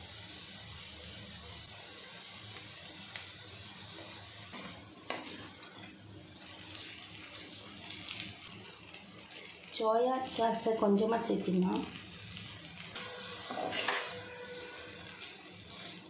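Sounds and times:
noodles sizzling: 0:00.0 - 0:16.0.

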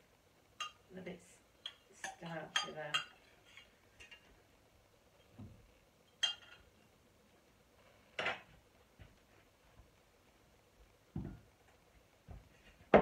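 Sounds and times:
crockery clatter: 0:06.1 - 0:06.7.

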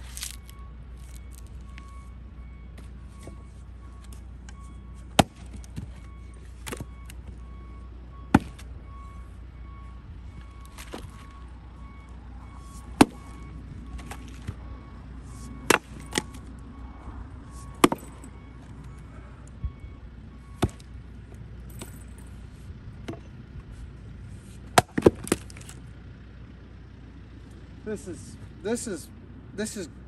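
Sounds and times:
axe splitting firewood: 0:00.0 - 0:01.5, 0:05.0 - 0:07.3, 0:08.3 - 0:08.7, 0:10.6 - 0:11.4, 0:12.6 - 0:14.6, 0:15.3 - 0:16.5, 0:17.6 - 0:18.3, 0:20.5 - 0:20.9, 0:24.6 - 0:25.8
steady low rumble: 0:00.0 - 0:29.6.

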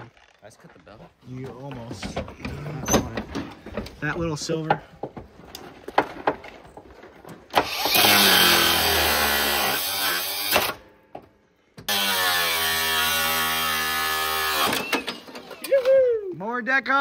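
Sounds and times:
angle grinder cutting metal: 0:07.6 - 0:10.8, 0:11.9 - 0:15.5.

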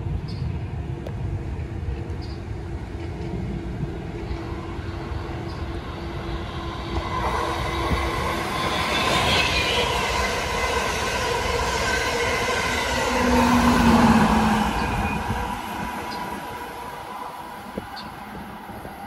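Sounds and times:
train wheels rumbling: 0:00.0 - 0:19.0
steady high-pitched tones: 0:04.3 - 0:19.0.

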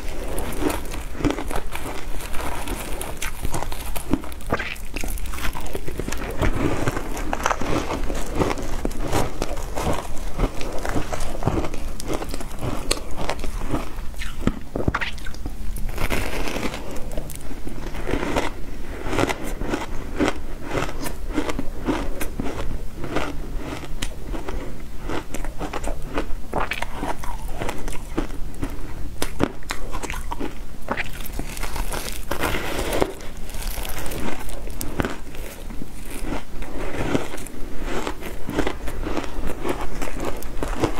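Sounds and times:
shaved ice crunching: 0:00.0 - 0:14.3, 0:31.0 - 0:40.9
chewing ice: 0:00.0 - 0:40.9.

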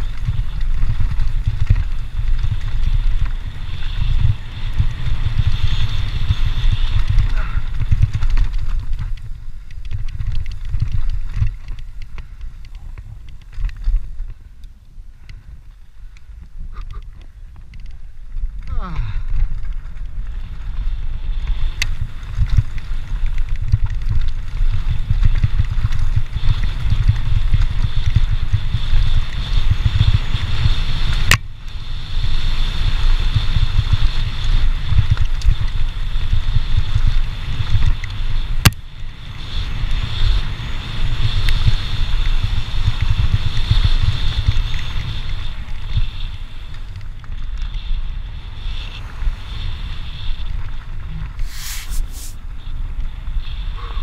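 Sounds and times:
wind buffeting microphone: 0:00.0 - 0:54.0
tyres hissing on gravel: 0:51.2 - 0:52.6.

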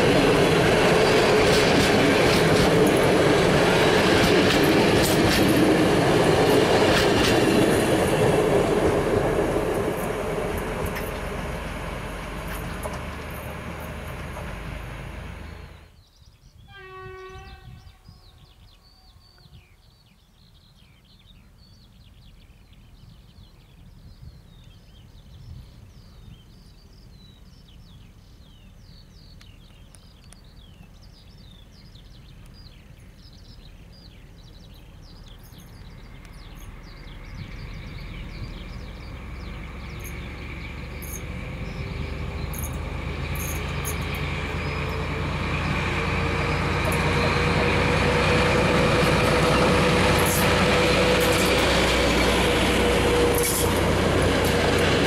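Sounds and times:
diesel locomotive rumble: 0:00.0 - 0:15.9, 0:32.4 - 0:55.0
birds chirping: 0:00.0 - 0:55.0
train horn blast: 0:16.6 - 0:19.6, 0:44.8 - 0:54.3.

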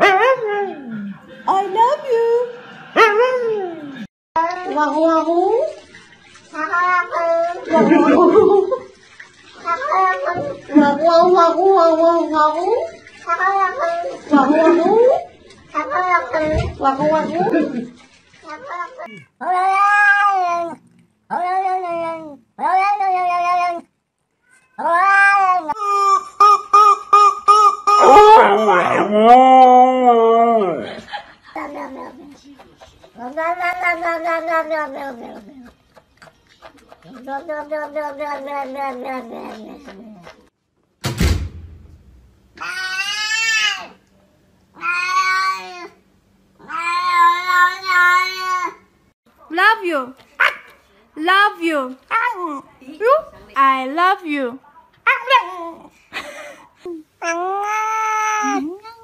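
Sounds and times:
cat meowing: 0:18.5 - 0:25.8, 0:33.2 - 0:35.5
sharp knock: 0:41.0 - 0:42.4.

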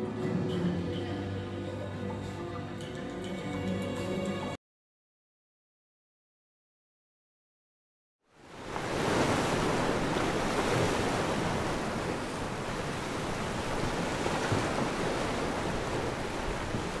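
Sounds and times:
waves breaking on beach: 0:08.4 - 0:17.0.

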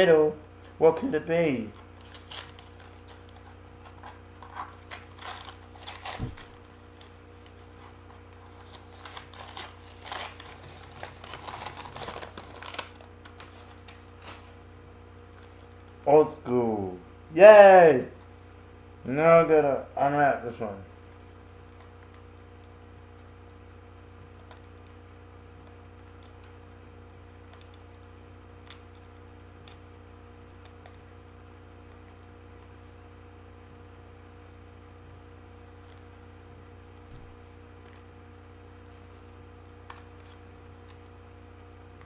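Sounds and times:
low electrical hum: 0:00.0 - 0:42.0
wrapping paper crinkling: 0:01.7 - 0:14.7.

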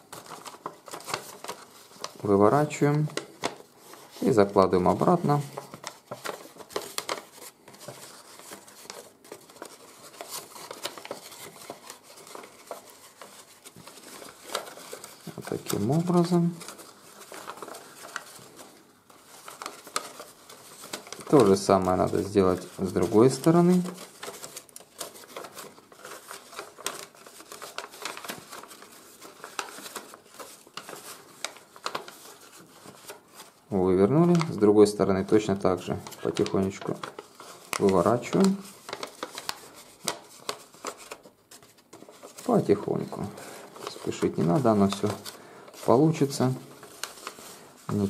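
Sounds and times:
paper rustling and crinkling: 0:00.0 - 0:48.0.

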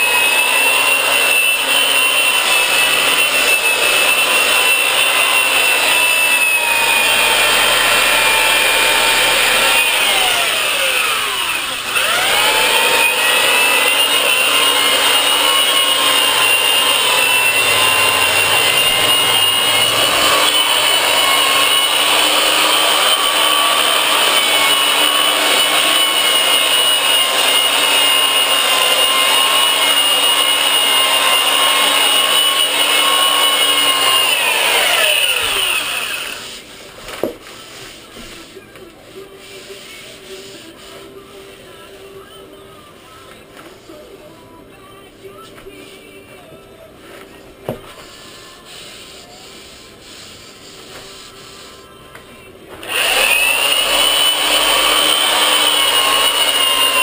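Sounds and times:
sander whining: 0:00.0 - 0:36.7, 0:52.8 - 0:57.0.

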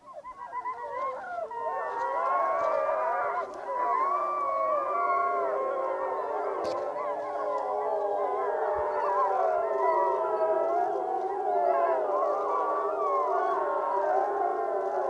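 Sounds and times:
wolves howling in chorus: 0:00.0 - 0:15.0.

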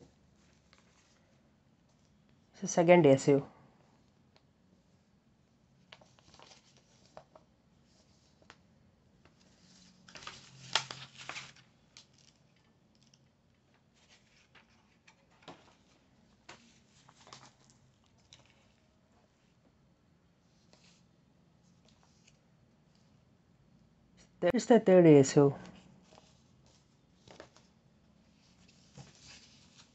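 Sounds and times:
paper pages flipping: 0:05.9 - 0:08.6, 0:09.2 - 0:18.6, 0:26.0 - 0:27.7, 0:28.4 - 0:29.9.

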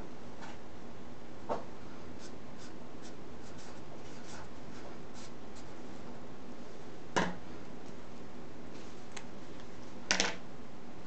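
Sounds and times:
marker writing on paper: 0:02.2 - 0:05.7.

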